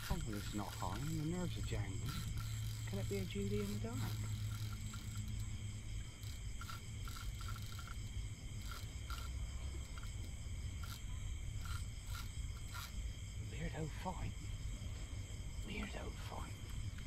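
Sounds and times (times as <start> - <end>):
fishing reel clicks: 0.0 - 13.0
low steady hum: 0.0 - 17.0
night insects and crickets chirping: 0.0 - 17.0.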